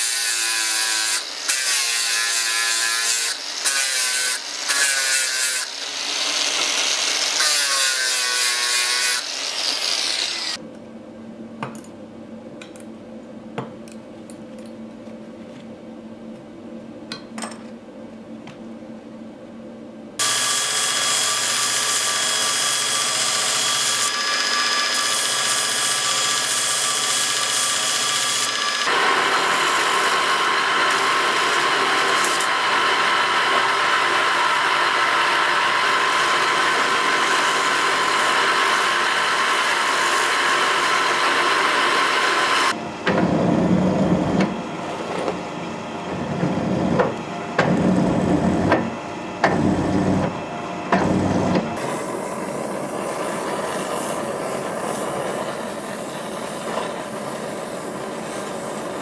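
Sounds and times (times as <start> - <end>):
electric power tool whining: 5.5 - 7.6, 27.0 - 42.8.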